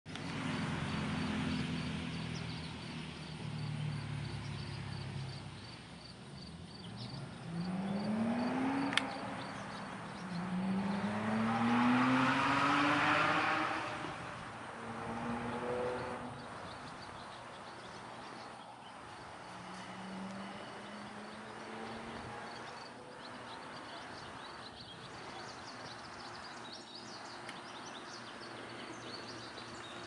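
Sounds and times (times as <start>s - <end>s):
vehicle engine accelerating: 0.1s - 30.0s
sharp click: 8.9s - 9.2s.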